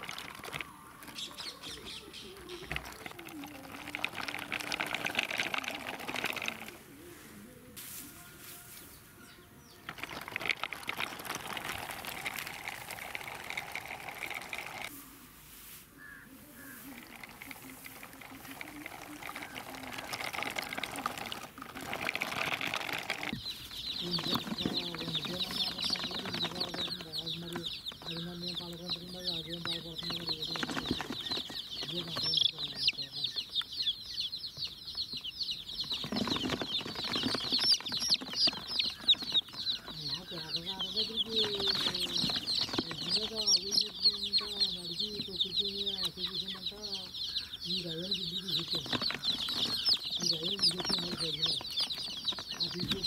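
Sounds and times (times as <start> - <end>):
chicks cheeping: 0.0 - 6.9, 8.2 - 14.9, 16.0 - 53.0
dense crackling rustle: 0.0 - 9.0, 9.7 - 53.0
birds chirping and calling: 0.0 - 53.0.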